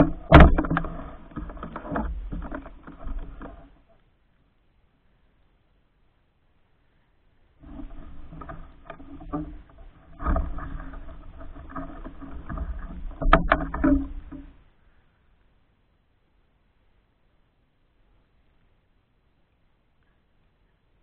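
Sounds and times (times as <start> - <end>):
sharp knocks: 0.0 - 3.2.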